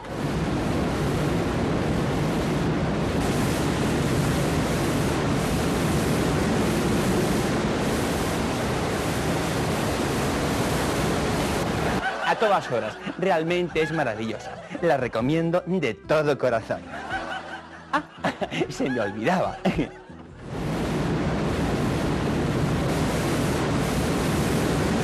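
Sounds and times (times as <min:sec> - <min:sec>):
vacuum cleaner running: 0:00.0 - 0:12.0, 0:20.4 - 0:25.0.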